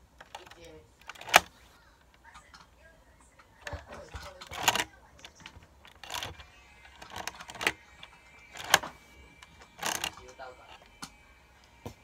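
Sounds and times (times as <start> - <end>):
plastic bricks clacking: 5.9 - 7.8, 9.8 - 10.2.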